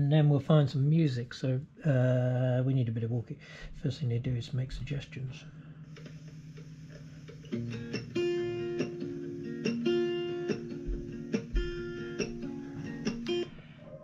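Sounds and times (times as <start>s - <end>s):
acoustic guitar music: 5.7s - 13.9s.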